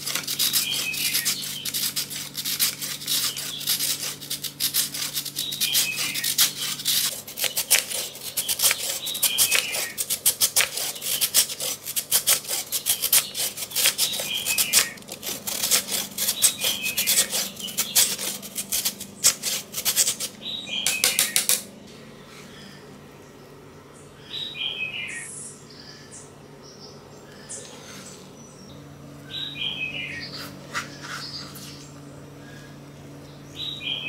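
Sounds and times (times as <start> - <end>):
carrot grating on metal grater: 0.0 - 21.6.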